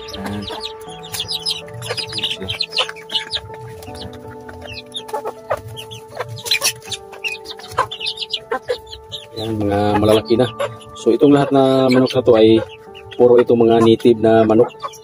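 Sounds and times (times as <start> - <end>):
chickens clucking: 0.0 - 15.0
chicks peeping: 0.0 - 15.0.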